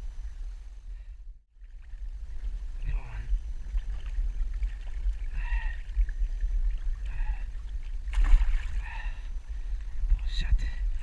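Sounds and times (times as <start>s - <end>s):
wind rumble on microphone: 0.0s - 11.0s
water sloshing on rocks: 3.6s - 8.9s
short sharp splash: 8.1s - 8.8s.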